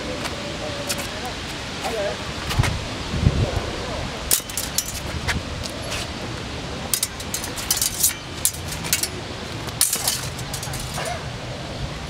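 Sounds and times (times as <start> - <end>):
steady outdoor hiss: 0.0 - 12.0
fencing blades clashing: 4.3 - 6.1, 6.8 - 11.3.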